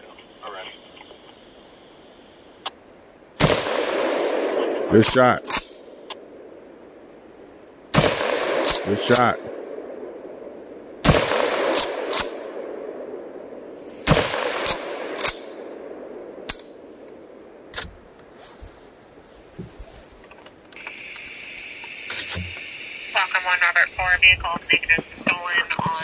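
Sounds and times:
shotgun blast echoing: 3.4 - 6.0, 7.9 - 10.1, 11.0 - 13.2, 14.0 - 16.8.

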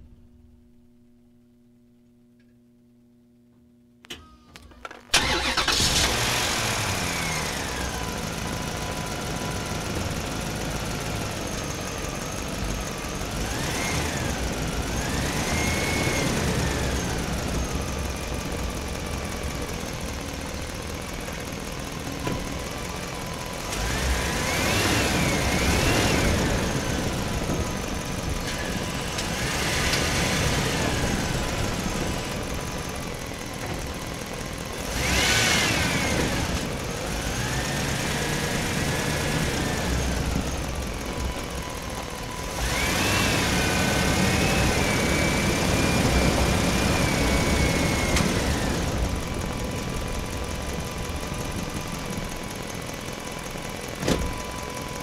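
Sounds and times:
truck engine low rumble: 4.5 - 55.0.

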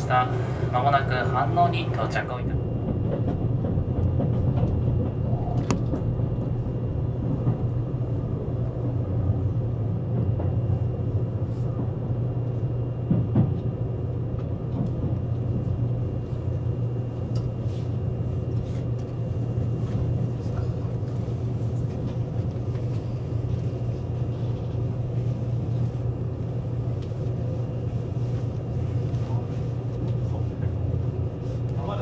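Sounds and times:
electric train cabin rumble: 0.0 - 32.0.

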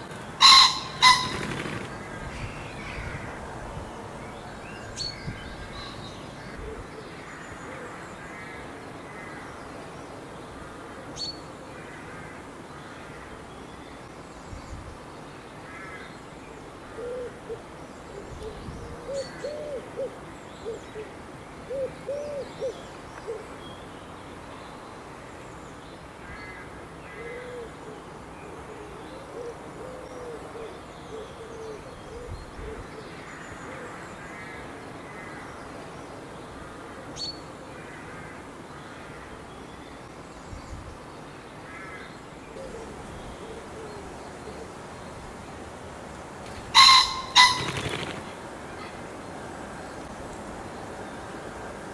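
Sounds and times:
songbirds twittering: 0.0 - 51.9
pigeon cooing: 0.4 - 1.9, 17.0 - 17.6, 18.2 - 20.8, 21.7 - 23.4, 42.6 - 44.8, 46.8 - 48.3.

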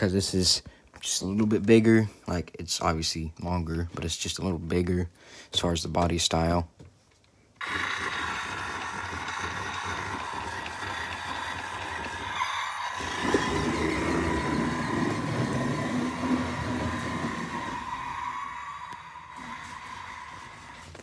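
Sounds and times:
toy truck motor whine: 7.6 - 21.0.

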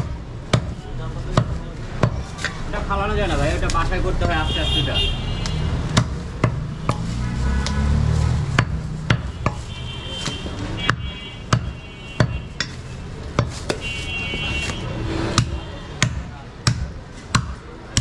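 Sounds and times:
knife chopping meat on wood: 0.0 - 2.6, 5.4 - 13.8, 15.3 - 18.0.

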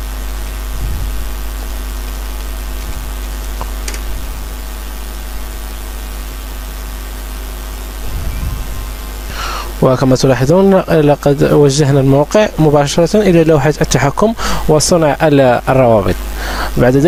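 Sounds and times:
low electrical hum: 0.0 - 17.0
microphone hiss: 0.0 - 17.0.

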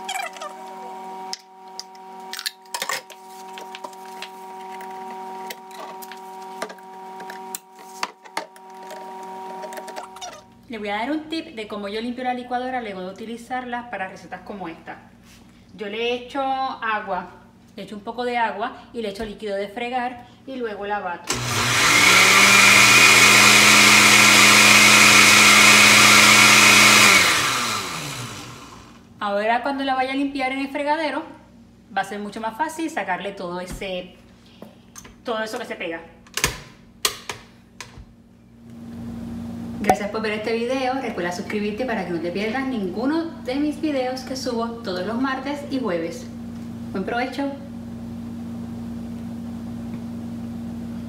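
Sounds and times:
blender motor running: 0.0 - 2.6, 3.4 - 10.4, 21.3 - 29.1.

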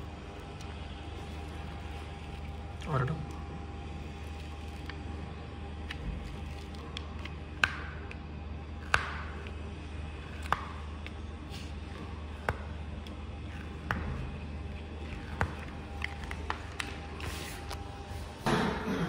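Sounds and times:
steady low hum: 0.0 - 19.0
paper crackling: 0.3 - 7.4.

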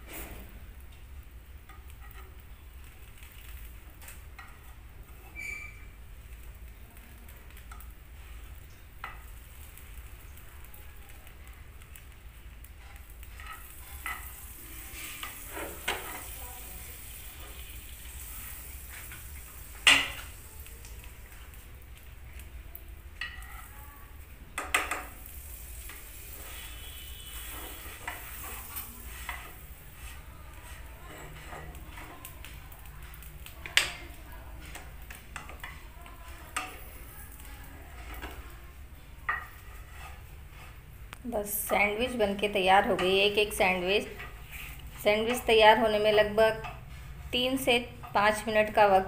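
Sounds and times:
faint sizzling: 0.0 - 49.0
spatula scraping pan: 1.7 - 2.4, 12.7 - 20.4, 24.6 - 49.0
utensil clattering on pan: 15.1 - 16.4, 19.0 - 20.4, 23.2 - 23.7, 24.6 - 26.6.

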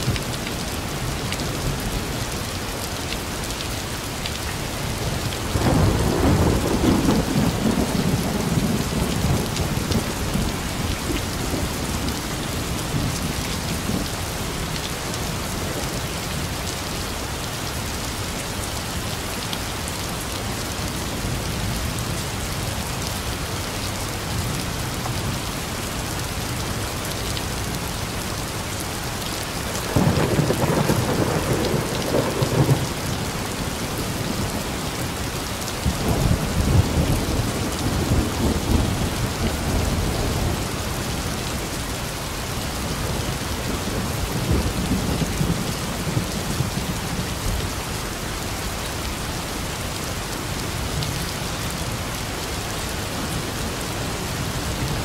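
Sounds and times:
heavy rain: 0.0 - 55.0
thunder rumbling: 5.5 - 14.1, 29.8 - 34.6.

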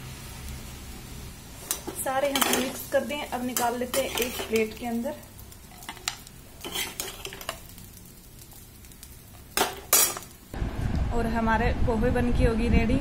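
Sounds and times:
metal spatula scraping a pan: 1.6 - 2.9, 3.5 - 4.8, 5.7 - 7.7.

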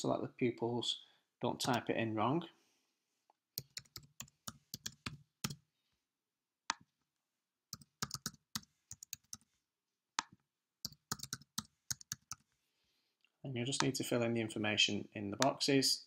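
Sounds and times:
computer keyboard typing: 3.6 - 5.6, 7.8 - 9.5, 10.8 - 12.4.

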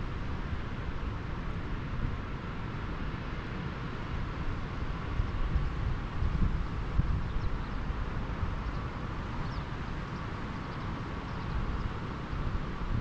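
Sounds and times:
wind buffeting microphone: 5.2 - 8.9.

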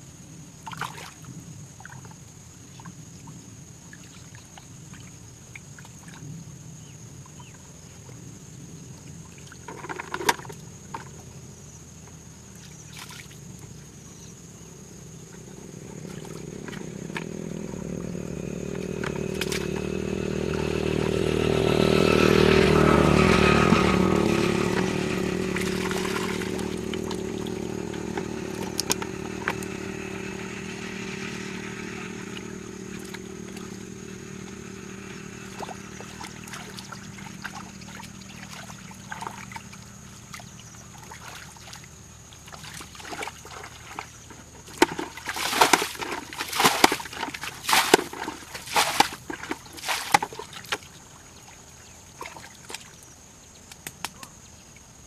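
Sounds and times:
water splashing from a bucket: 0.6 - 3.0, 9.3 - 11.1, 12.5 - 13.4, 15.3 - 53.1
engine passing: 13.3 - 51.5.

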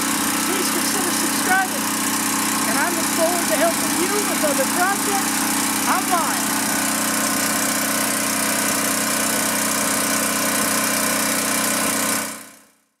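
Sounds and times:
generator engine running: 0.0 - 12.8.

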